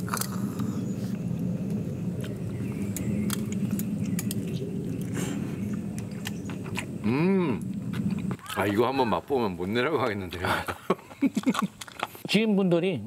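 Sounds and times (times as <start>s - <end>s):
man chewing food: 0.0s - 8.7s, 11.1s - 12.2s
low background hum: 0.0s - 13.0s.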